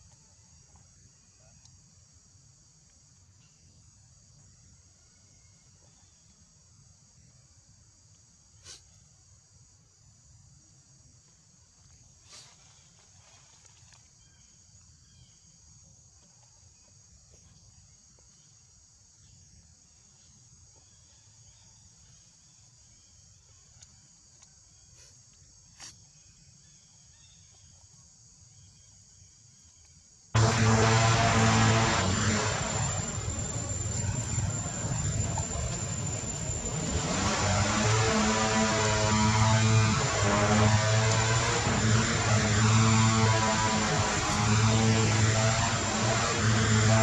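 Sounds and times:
high-pitched insect chorus: 30.4 - 47.0
low rumble: 30.4 - 47.0.

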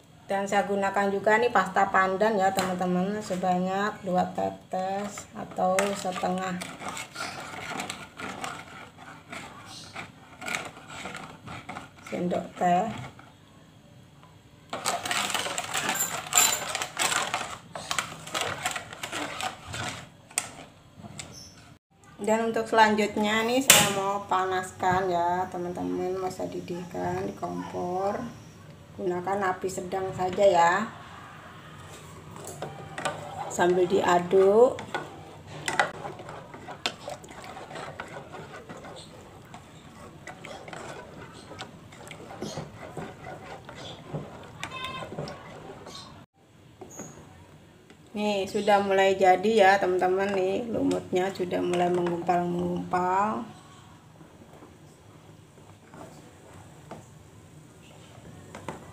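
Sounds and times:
spatula scraping a metal pot: 4.9 - 13.3, 14.8 - 20.1, 32.4 - 46.3.

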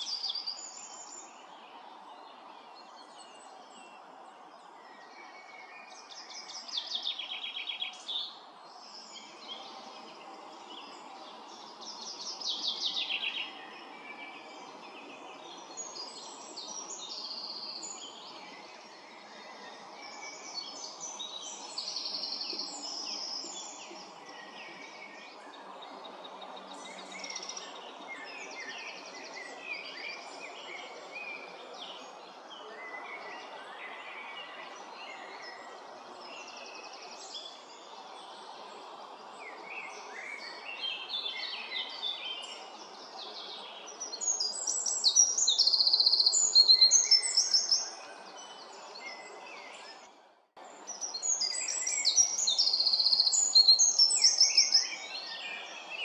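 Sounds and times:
songbirds chirping and trilling: 0.0 - 56.0.

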